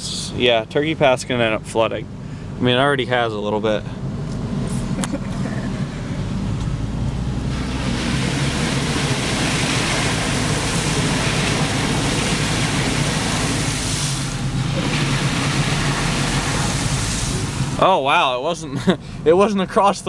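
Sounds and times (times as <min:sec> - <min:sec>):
car engine running: 0:00.0 - 0:20.0
water spraying against car: 0:07.4 - 0:18.1.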